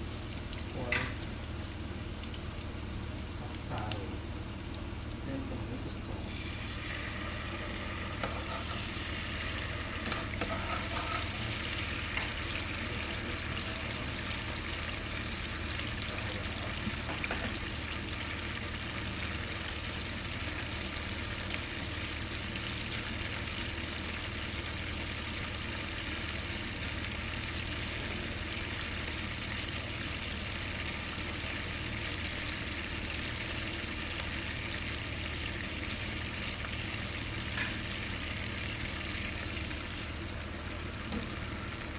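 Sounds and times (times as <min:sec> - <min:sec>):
food sizzling in a frying pan: 0:00.0 - 0:41.9.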